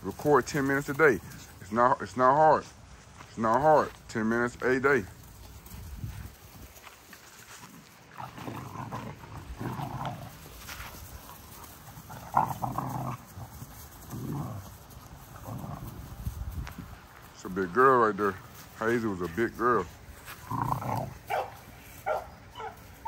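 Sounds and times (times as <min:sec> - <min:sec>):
puppies vocalizing while playing: 0:07.6 - 0:16.5, 0:20.2 - 0:23.0.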